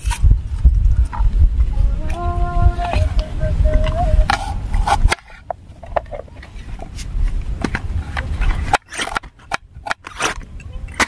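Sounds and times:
low rumble: 0.2s - 5.8s.

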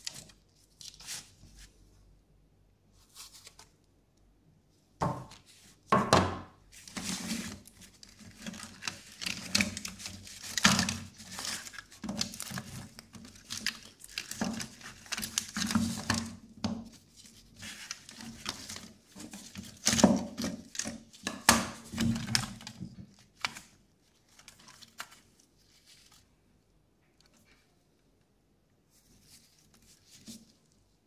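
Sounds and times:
rustling: 28.9s - 31.0s.

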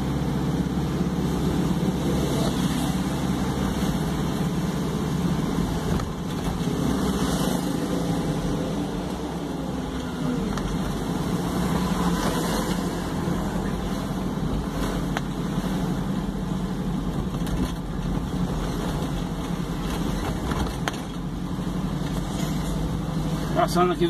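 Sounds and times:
car engine and road noise: 0.0s - 24.0s.

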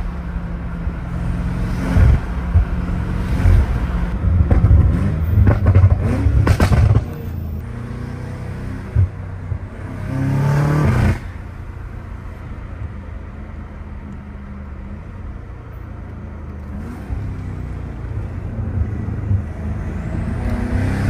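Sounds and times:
car engine revving: 0.8s - 11.4s, 16.5s - 21.0s.

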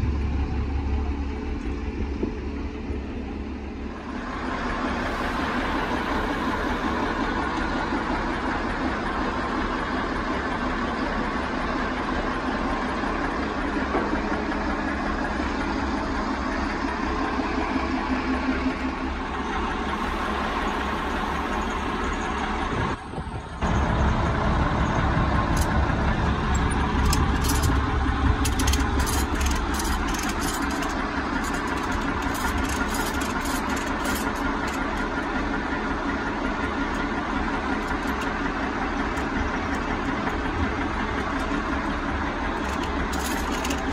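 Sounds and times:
heavy engine idling: 0.0s - 43.9s
ratchet strap clicking: 26.6s - 35.4s, 42.6s - 43.9s.

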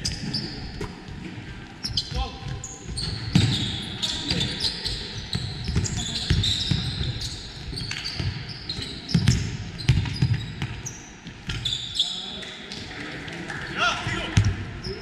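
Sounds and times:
sneakers squeaking: 0.0s - 13.0s
basketball bouncing on court: 1.9s - 11.7s.

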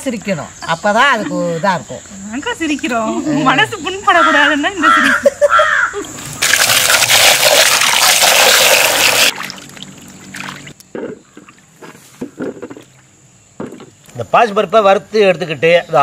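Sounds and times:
water splashing in a basin: 6.2s - 10.8s.

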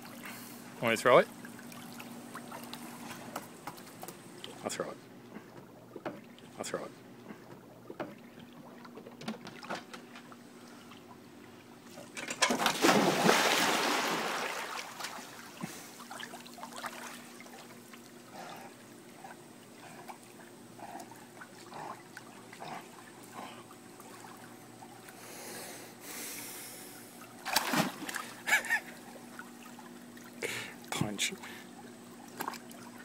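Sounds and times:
water sloshing and lapping: 0.0s - 25.3s, 26.8s - 33.0s
dog splashing into pool: 12.4s - 17.7s, 27.4s - 28.4s.

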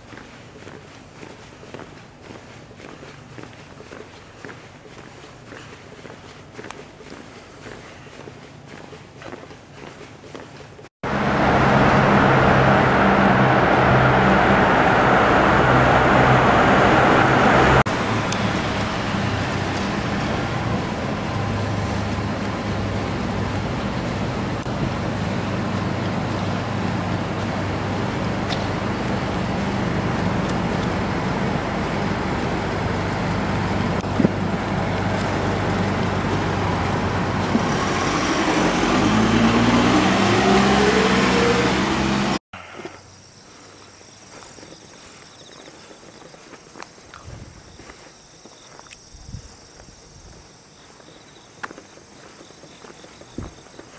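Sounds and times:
quiet outdoor background: 0.0s - 53.9s
cars passing in tunnel: 11.0s - 42.4s
engine pitch climbing: 11.0s - 42.4s.

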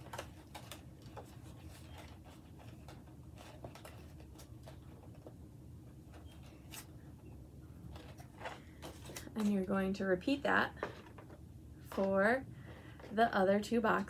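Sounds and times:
card stock rustling and ticking: 0.0s - 6.9s.

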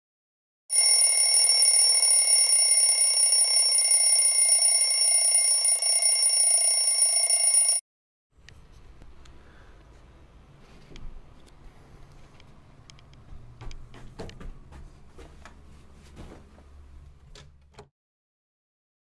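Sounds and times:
bell ringing loudly: 0.7s - 7.8s.

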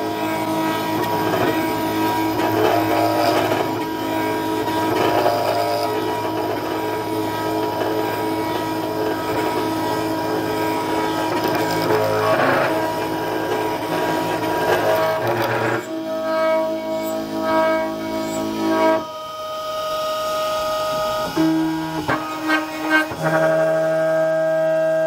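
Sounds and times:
stepper motors whining: 0.0s - 19.1s
router spindle running: 0.0s - 25.0s.

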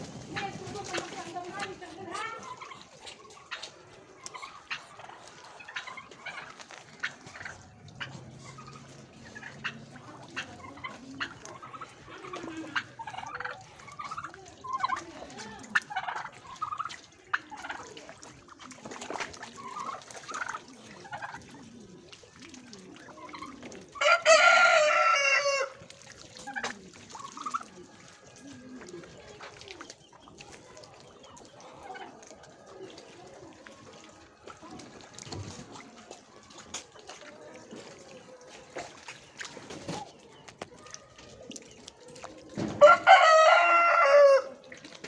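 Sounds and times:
chickens clucking: 0.0s - 45.0s
rooster crowing: 24.0s - 25.7s, 42.8s - 44.6s.

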